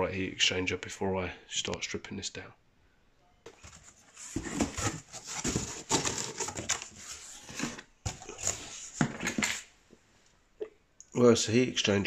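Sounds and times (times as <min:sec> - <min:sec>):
cardboard rustling and scraping: 0:03.5 - 0:09.7.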